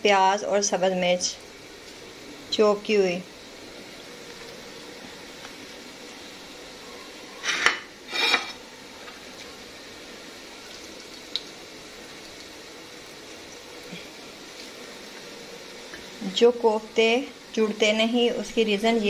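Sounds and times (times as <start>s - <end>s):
steady low hiss: 0.0s - 19.0s
bowl and plates handled: 7.4s - 8.6s.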